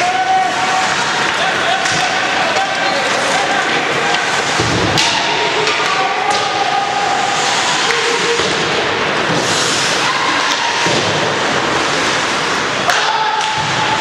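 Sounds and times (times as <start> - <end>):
loud rink din: 0.0 - 14.0.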